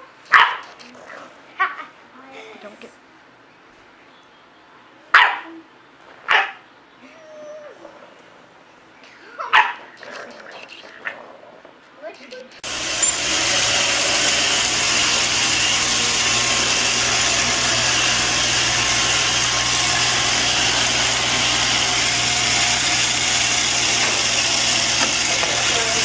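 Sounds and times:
robot vacuum cleaner running: 0:12.6 - 0:26.0.

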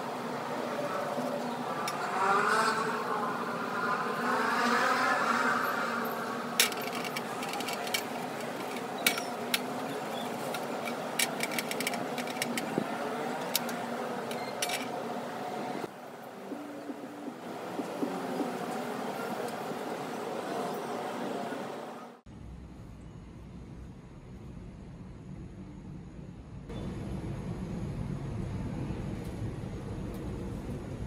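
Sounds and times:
wavering engine-like drone: 0:00.0 - 0:22.2.

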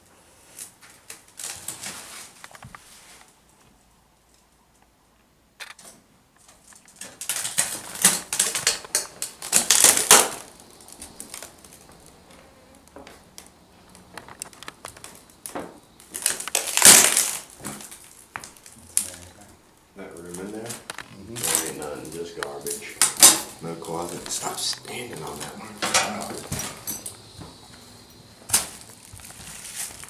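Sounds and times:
debris being moved and stepped on: 0:06.5 - 0:12.2, 0:12.9 - 0:19.2, 0:28.4 - 0:30.0.

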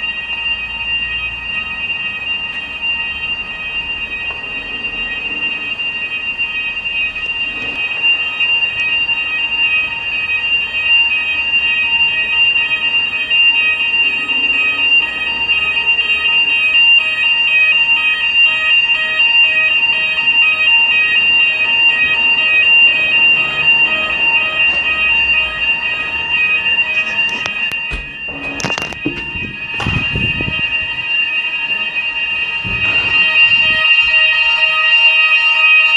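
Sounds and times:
fire alarm pulsing tone: 0:00.0 - 0:35.9.

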